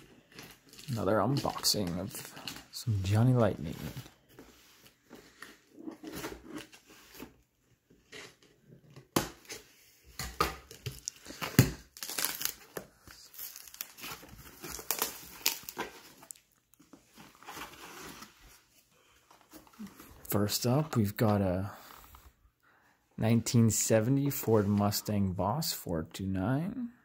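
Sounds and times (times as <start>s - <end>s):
cardboard and plastic rustling: 0.0s - 20.4s
packing tape tearing: 10.6s - 16.4s.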